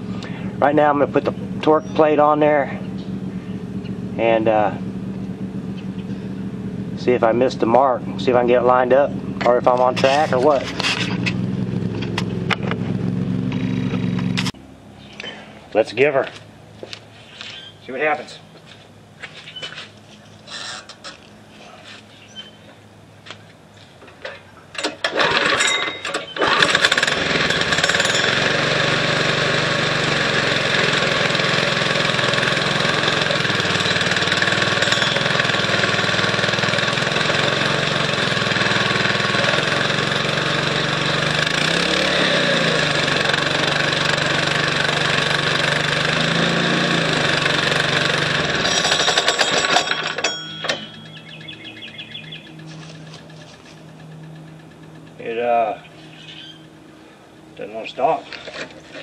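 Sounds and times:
small engine running: 0.0s - 15.8s, 19.7s - 22.3s, 24.8s - 59.0s
scooter engine pull-started: 9.3s - 14.5s, 20.5s - 21.2s, 24.7s - 56.7s, 58.3s - 59.0s.

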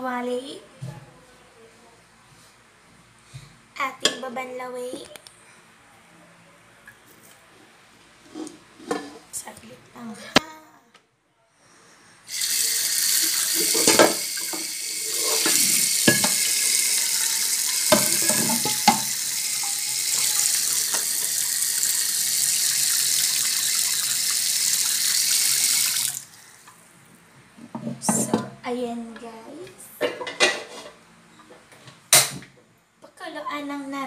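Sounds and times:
tap running into sink: 12.4s - 26.2s
wok knocking against sink: 15.4s - 16.6s, 17.7s - 20.3s.

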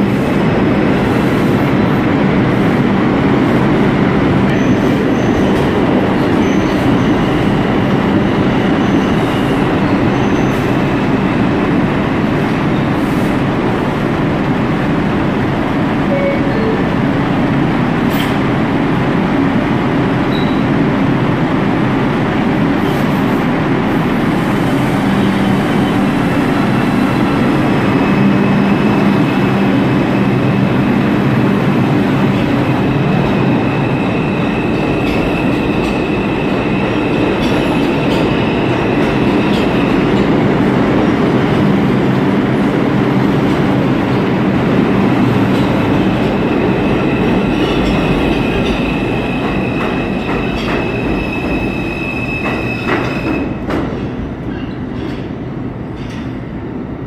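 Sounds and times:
subway train rumbling: 0.0s - 57.0s
high wheel squeal: 46.4s - 53.6s.

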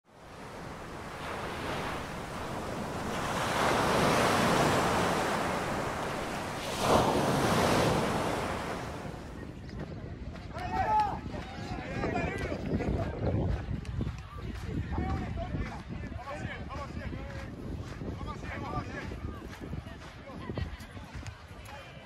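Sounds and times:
wave crash: 0.0s - 9.4s
ocean waves breaking: 0.0s - 9.5s.

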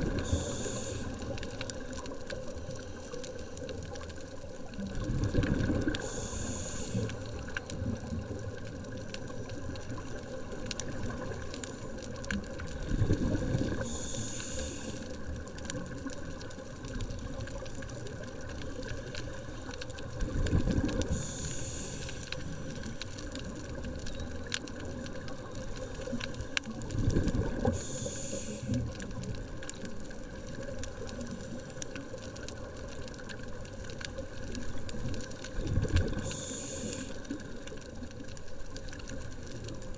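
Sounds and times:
exhaled bubbles: 0.0s - 39.9s
underwater breathing through regulator: 0.1s - 1.4s, 5.6s - 7.3s, 12.9s - 15.2s, 21.0s - 22.9s, 27.6s - 28.9s, 36.1s - 37.4s.

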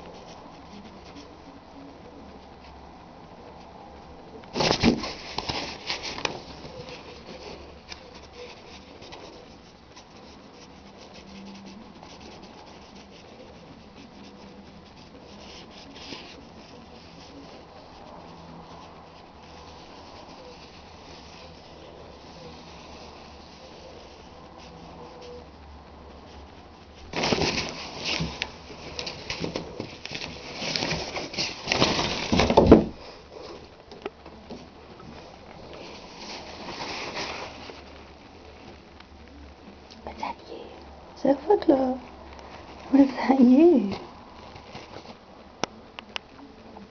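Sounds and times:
plastic shower curtain rustling: 4.5s - 9.6s, 26.3s - 33.6s, 35.0s - 38.7s
small pet scratching: 4.5s - 32.6s.

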